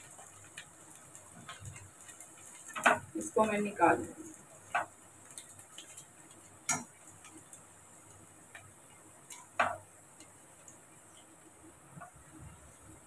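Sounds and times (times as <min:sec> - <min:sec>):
spoon tapping metal pan: 0:06.7 - 0:06.9.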